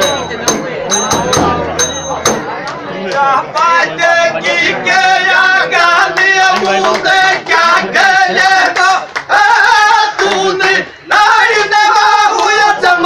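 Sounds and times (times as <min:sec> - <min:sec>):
men singing folk song: 0:03.1 - 0:13.0.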